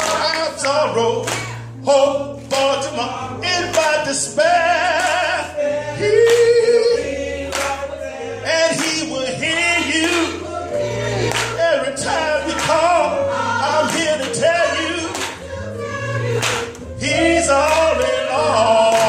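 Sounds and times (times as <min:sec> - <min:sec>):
man singing lead into microphone: 0:00.0 - 0:10.4, 0:11.5 - 0:15.2, 0:17.0 - 0:19.0
gospel choir singing: 0:00.0 - 0:19.0
low bass notes: 0:00.0 - 0:19.0.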